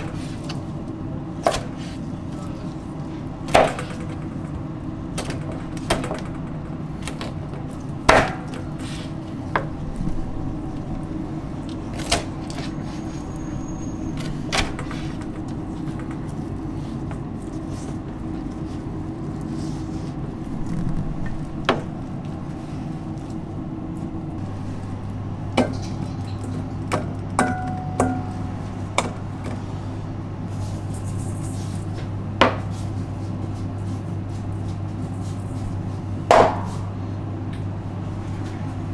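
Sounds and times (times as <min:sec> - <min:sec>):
steady background hum: 0:00.0 - 0:38.9
lower hum: 0:09.2 - 0:12.0, 0:15.5 - 0:38.9.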